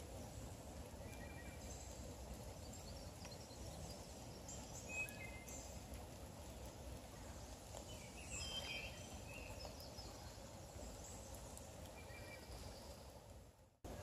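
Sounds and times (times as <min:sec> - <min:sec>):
faint bird chirps: 0:01.0 - 0:02.0, 0:02.6 - 0:05.8, 0:07.1 - 0:13.2.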